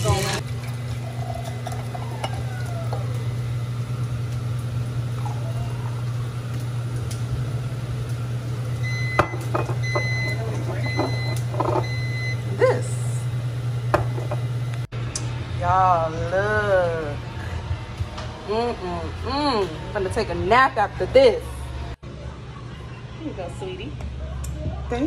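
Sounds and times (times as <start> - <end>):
low hum: 11.0 - 23.2.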